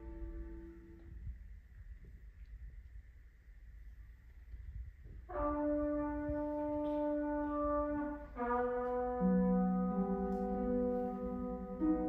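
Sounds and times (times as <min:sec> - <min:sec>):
chamber orchestra holding chords: 0:07.2 - 0:12.0.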